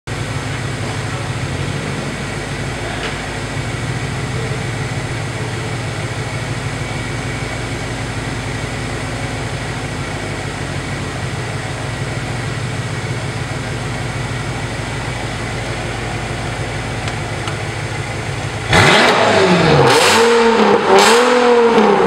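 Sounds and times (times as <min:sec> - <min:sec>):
car engines idling: 0:00.1 - 0:22.0.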